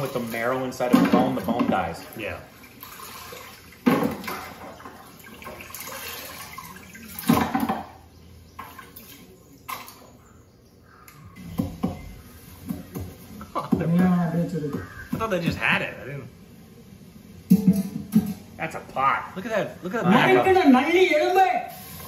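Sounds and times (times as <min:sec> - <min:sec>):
water pouring over bones: 0:00.0 - 0:07.4.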